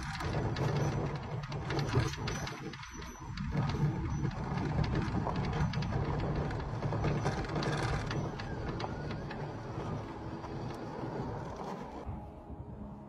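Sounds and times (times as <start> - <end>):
camera moving over gravel: 3.5 - 12.1.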